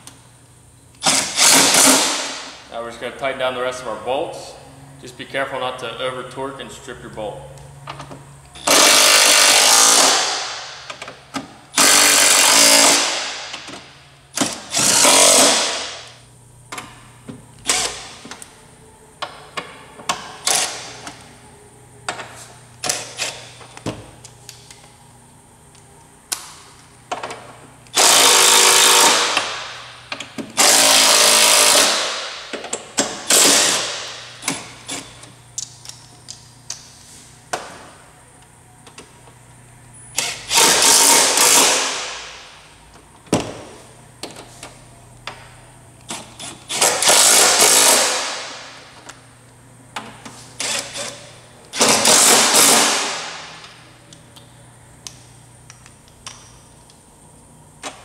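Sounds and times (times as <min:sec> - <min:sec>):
impact wrench bursts: 0:01.0 - 0:02.6, 0:08.6 - 0:16.2, 0:17.6 - 0:18.2, 0:20.4 - 0:21.0, 0:27.9 - 0:35.4, 0:40.2 - 0:42.6, 0:46.1 - 0:49.0, 0:50.6 - 0:53.7.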